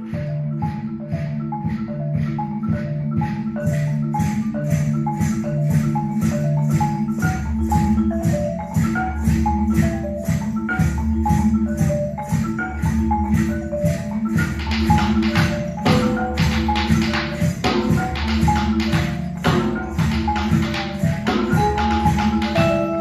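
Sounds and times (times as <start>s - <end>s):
marimba melody: 0.0s - 23.0s.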